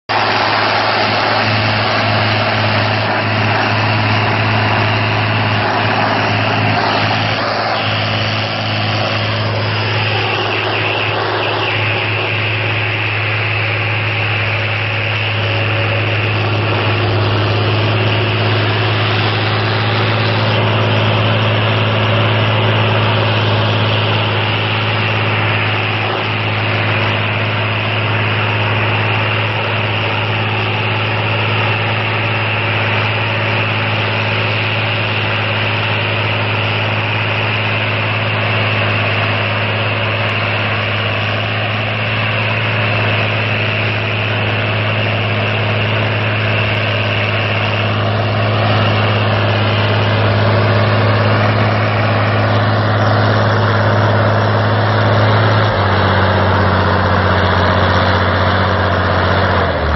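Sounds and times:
tractor engine running steadily: 0.0 - 59.9.

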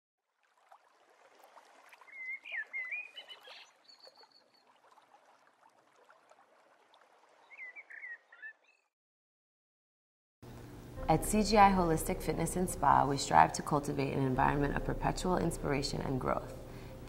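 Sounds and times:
running water: 0.2 - 8.3
birds calling: 2.0 - 4.6, 7.4 - 8.9.

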